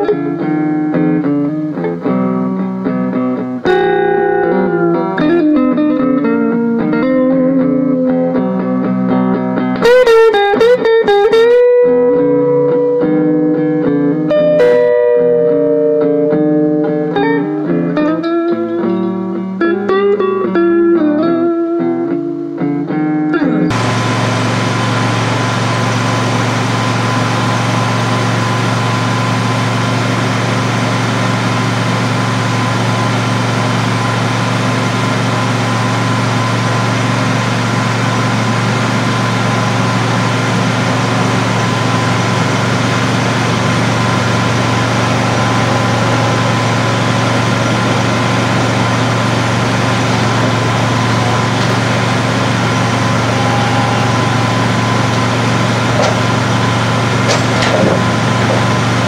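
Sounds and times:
engine idling: 23.7 - 59.0
thin steady whine: 23.7 - 59.0.

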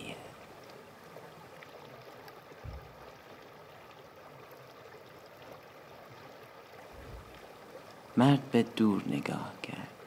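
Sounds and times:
stream rushing over rocks: 0.0 - 10.0
low thump: 2.6 - 3.0.

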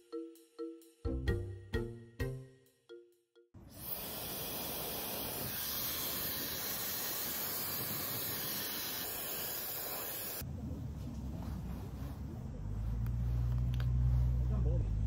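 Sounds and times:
hair dryer blowing: 3.7 - 10.4.

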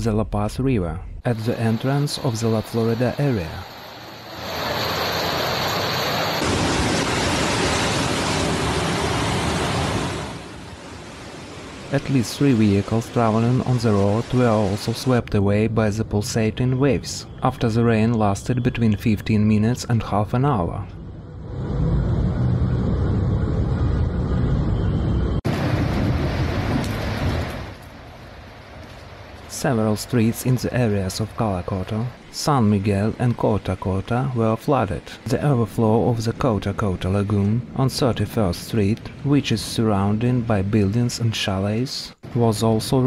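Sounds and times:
floodwater rushing: 1.4 - 15.3, 25.5 - 38.3
rain: 1.4 - 15.3, 25.4 - 40.8.

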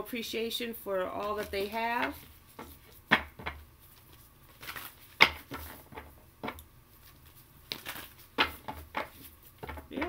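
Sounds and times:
cards clicking and tapping on table: 7.7 - 10.0.

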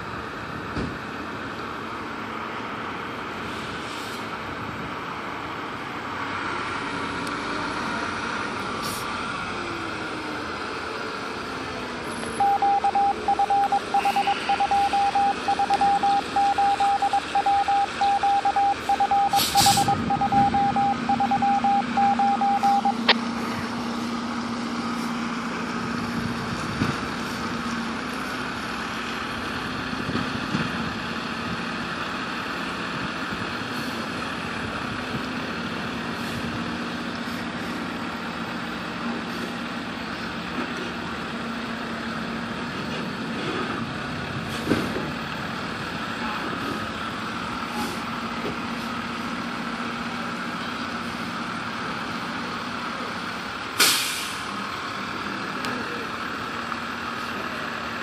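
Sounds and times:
diesel engine humming: 0.0 - 58.0
backup alarm beeping: 12.4 - 23.2
air hiss: 19.4 - 19.9, 53.8 - 54.4.

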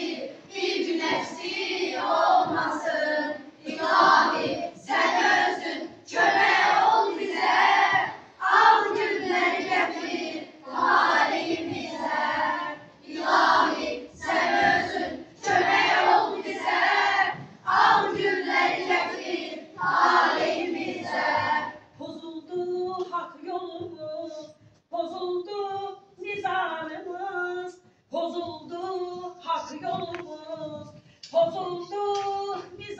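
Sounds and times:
children's voices in unison: 0.0 - 21.7.

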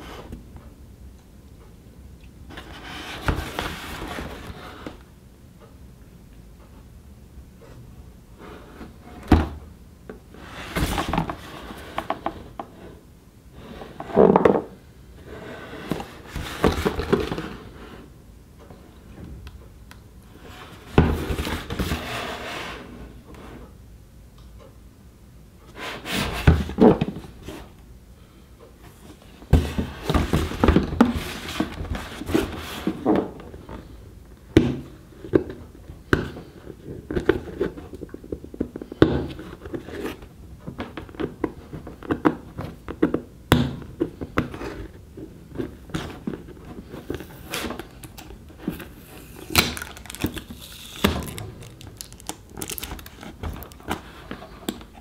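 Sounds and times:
hands handling cardboard box: 15.8 - 17.6, 44.0 - 55.0.

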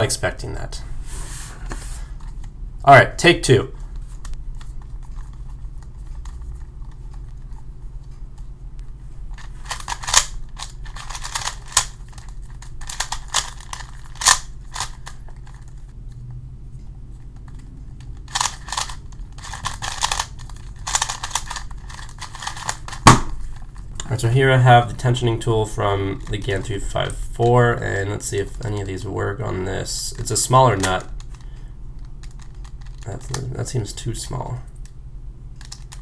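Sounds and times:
plastic cube clicks turning: 18.3 - 23.1, 35.6 - 36.0.

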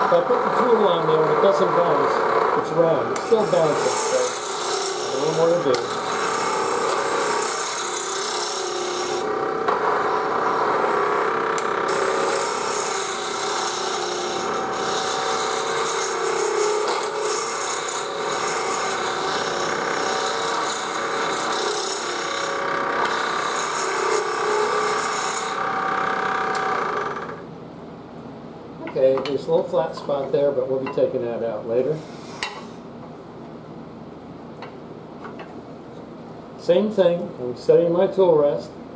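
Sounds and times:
gouge cutting wood on a lathe: 0.0 - 27.4.

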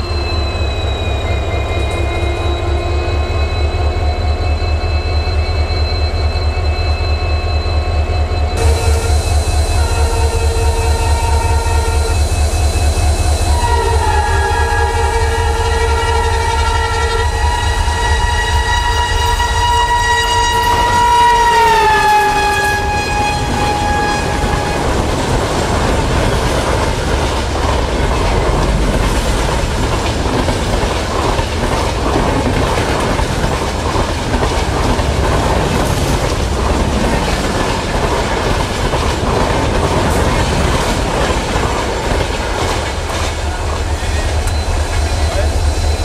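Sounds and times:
train rushing past: 7.5 - 46.0
locomotive horn blast: 8.6 - 25.2.

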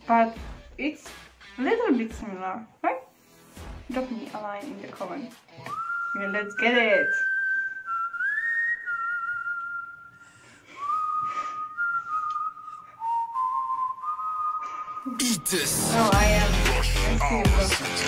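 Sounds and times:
whistled melody: 5.6 - 16.9.

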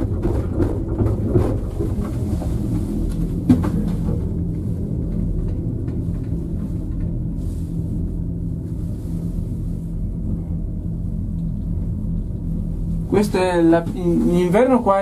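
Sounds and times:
gondola cabin rumble and hum: 0.0 - 15.0.

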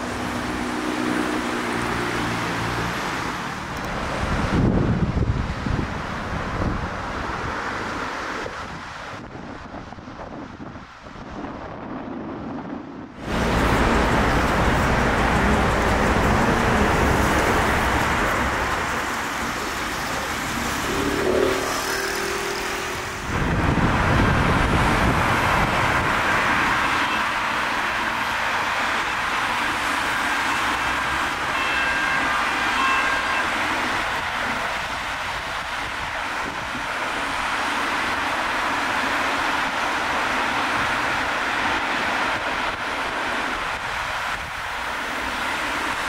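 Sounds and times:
motorway traffic rushing: 0.0 - 46.0.

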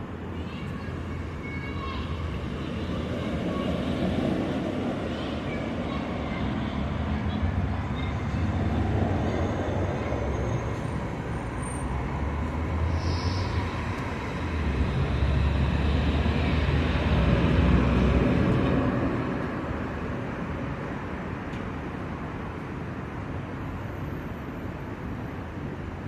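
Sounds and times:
street traffic rumble: 0.0 - 26.0
vehicle passing: 2.1 - 19.8.

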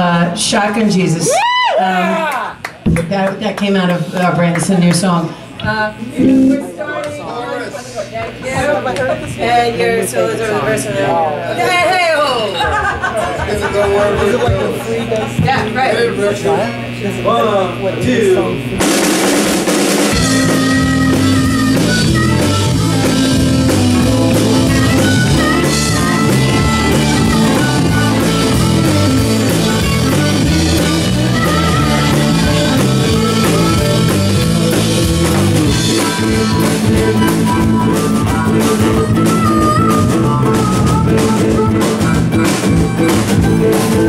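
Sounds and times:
electric guitar: 0.0 - 7.2, 14.2 - 44.0
drum kit beat: 2.8 - 6.8, 18.0 - 44.0
electric bass: 4.7 - 6.8, 14.4 - 44.0
keyboard: 18.6 - 44.0.

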